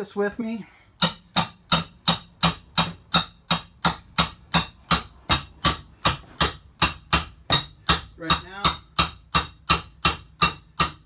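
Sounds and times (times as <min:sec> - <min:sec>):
hammer striking metal pry bar: 0:01.0 - 0:11.0.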